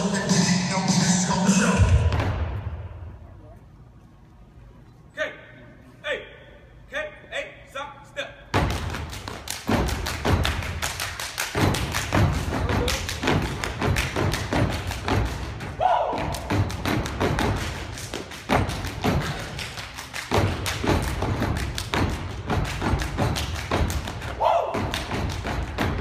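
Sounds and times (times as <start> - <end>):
rhythmic stomps on stage floor: 8.5 - 26.0
hand claps: 8.8 - 15.5, 16.2 - 26.0.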